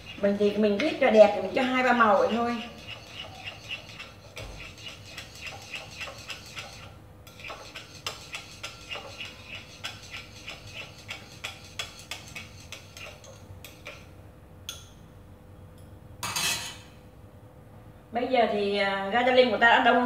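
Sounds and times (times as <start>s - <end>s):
chopsticks ticking against bowl: 2.6s - 14.1s.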